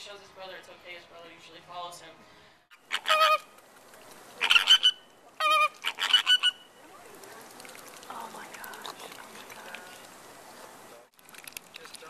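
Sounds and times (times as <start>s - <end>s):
flamingos honking: 2.7s - 3.6s, 4.3s - 7.5s.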